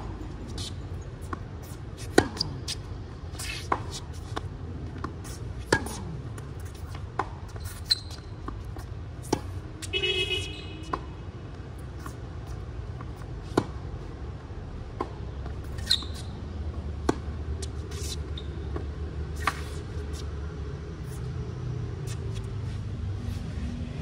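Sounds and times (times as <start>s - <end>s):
balls bouncing on hard court: 0.0s - 13.8s
tennis balls struck by racket: 0.0s - 14.0s, 14.9s - 20.4s
low rumble of city traffic: 0.0s - 24.0s
short squeak: 7.5s - 8.5s, 15.7s - 16.4s, 17.9s - 18.7s.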